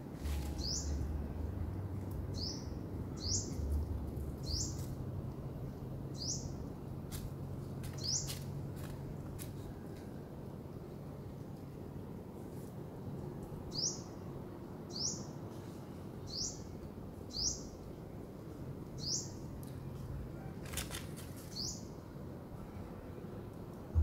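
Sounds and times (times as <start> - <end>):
low background noise: 0.0 - 24.0
small bird chirping: 0.4 - 1.0, 2.3 - 3.7, 4.4 - 4.9, 6.1 - 6.6, 8.0 - 8.4, 21.4 - 21.9.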